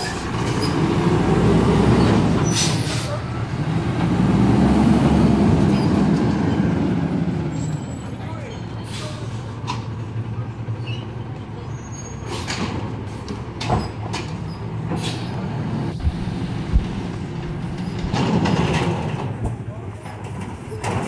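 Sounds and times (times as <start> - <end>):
short sharp truck noises: 0.0 - 10.0, 10.7 - 21.0
truck engine running: 14.6 - 19.5.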